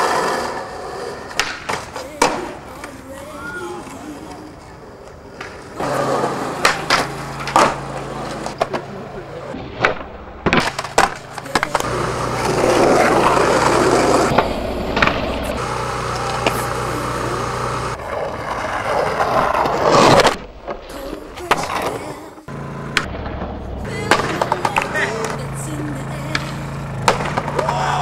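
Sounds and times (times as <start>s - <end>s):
skateboard wheels grinding on concrete: 0.0s - 28.0s
skateboard clacking on landing: 1.3s - 3.0s, 4.6s - 9.0s, 9.8s - 15.3s, 22.9s - 25.4s, 26.2s - 28.0s.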